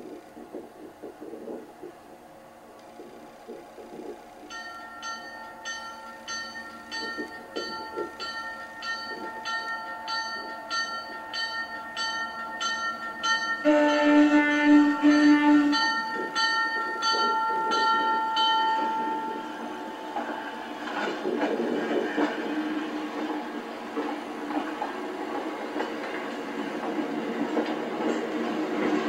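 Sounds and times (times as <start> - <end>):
locomotive bell ringing: 4.5 - 21.2
air horn blasts: 13.6 - 16.0.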